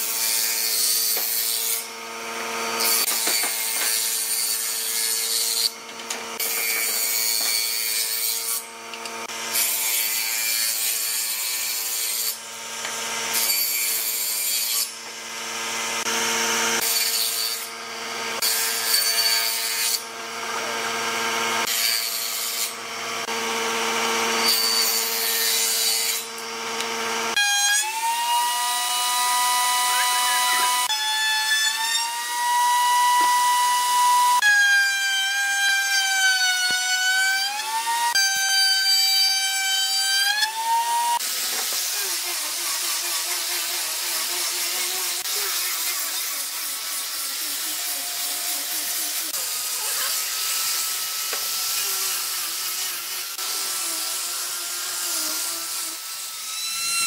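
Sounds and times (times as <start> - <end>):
power tool motor whine: 28.0 - 30.9, 37.6 - 57.0
rough cutting sound: 38.8 - 57.0.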